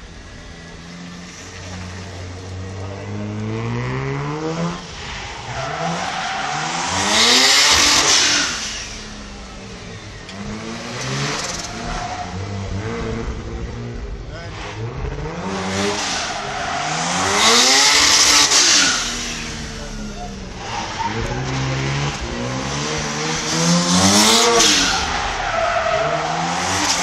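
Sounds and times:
rotary engine revving: 0.9 - 27.0
tyre screech: 5.0 - 13.0, 14.4 - 27.0.

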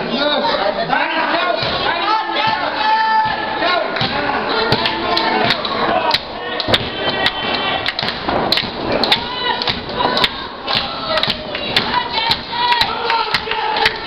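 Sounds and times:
audience shouting and yelling: 1.0 - 14.0
sharp claps and thuds: 3.2 - 14.0.

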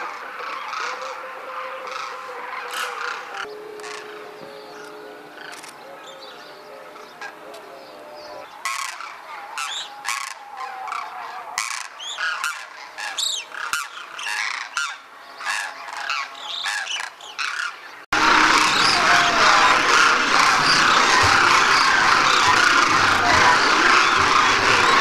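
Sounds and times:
cranes calling in flight: 0.0 - 25.0
loud even noise: 18.2 - 25.0.

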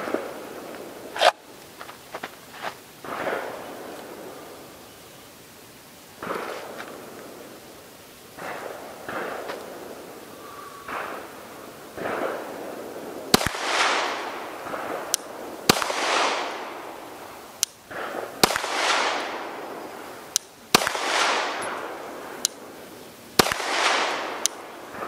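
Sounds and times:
pistol shots with echo: 13.3 - 15.1, 15.7 - 16.8, 17.9 - 19.6, 20.7 - 22.5, 23.4 - 25.0.

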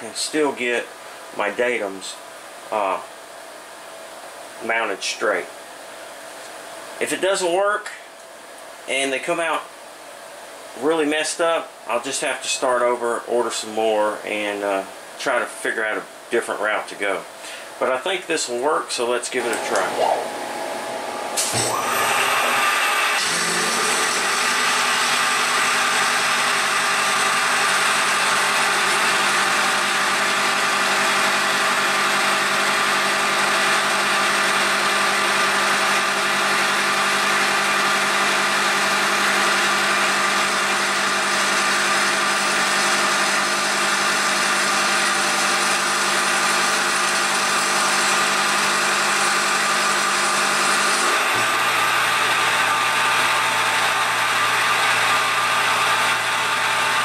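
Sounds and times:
milling machine whine: 19.4 - 57.0.

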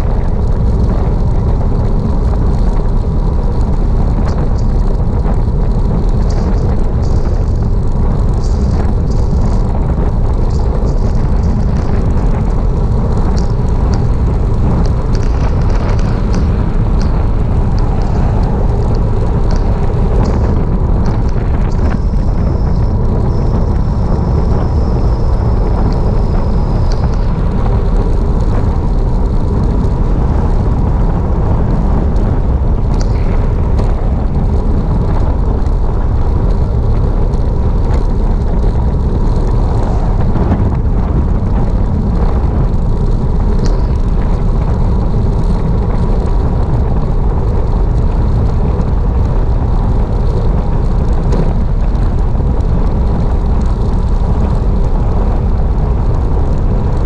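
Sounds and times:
wind buffeting microphone: 0.0 - 57.0
thin high whine: 6.2 - 44.9.

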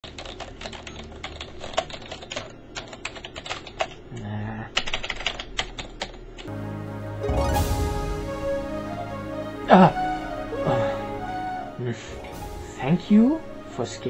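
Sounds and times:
computer keyboard typing: 0.0 - 6.5
music: 6.5 - 14.0.

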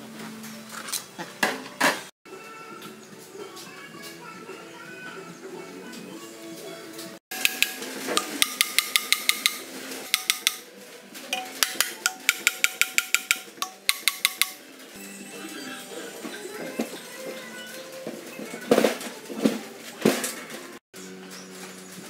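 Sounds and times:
background music: 6.5 - 19.9
hammer tapping on metal: 7.3 - 10.7, 11.4 - 14.6.

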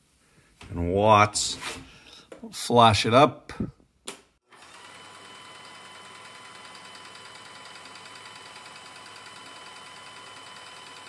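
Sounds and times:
paint sprayer motor whining: 4.5 - 11.0.

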